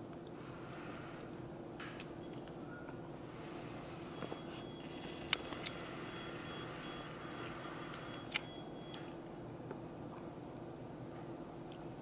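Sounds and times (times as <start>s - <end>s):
stud finder high-pitched beep: 4.1s - 9.3s.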